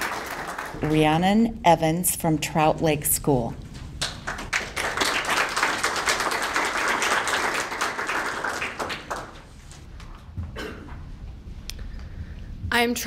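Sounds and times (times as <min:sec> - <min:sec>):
audience applauding: 0:00.0 - 0:01.2, 0:04.0 - 0:09.8.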